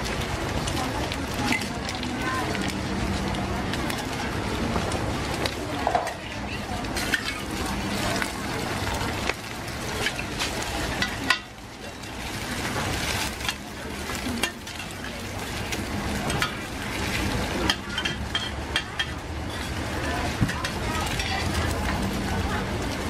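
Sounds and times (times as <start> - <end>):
food sizzling in oil: 0.0 - 23.0
metal spatulas scraping a wok: 16.2 - 19.9.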